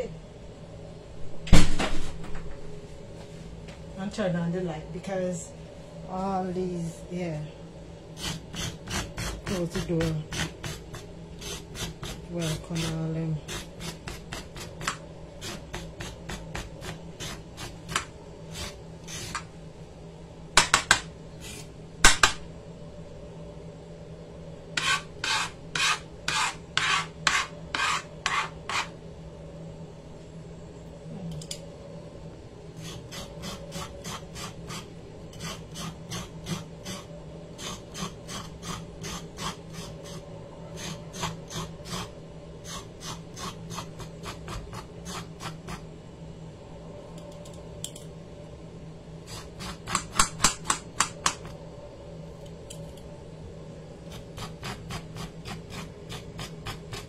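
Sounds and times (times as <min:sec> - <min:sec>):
knife scraping carrot: 0:08.2 - 0:19.4, 0:21.4 - 0:21.7, 0:24.8 - 0:28.9, 0:32.8 - 0:45.8, 0:49.2 - 0:50.7, 0:54.1 - 0:57.0.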